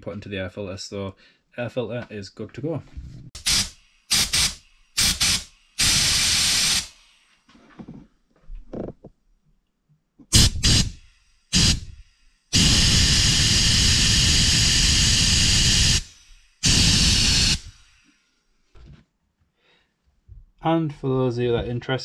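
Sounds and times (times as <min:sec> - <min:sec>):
air blow gun hissing: 0:03.4 - 0:07.4, 0:10.3 - 0:18.2.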